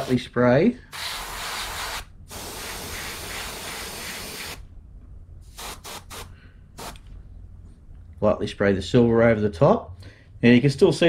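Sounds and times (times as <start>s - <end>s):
airbrush hissing: 0.9s - 4.6s, 5.5s - 7.0s.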